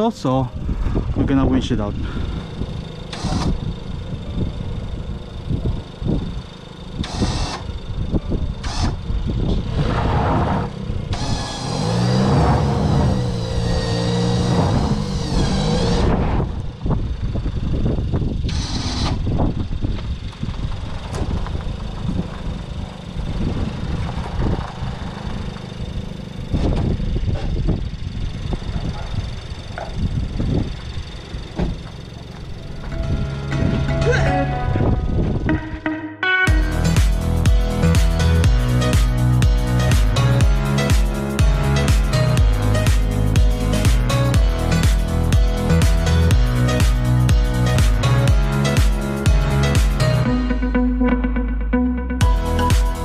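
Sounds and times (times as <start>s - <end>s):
low rumble: 0.0s - 7.1s, 7.7s - 35.8s
loud pitched whine: 0.0s - 53.0s
electric winch motor under load: 0.6s - 35.4s.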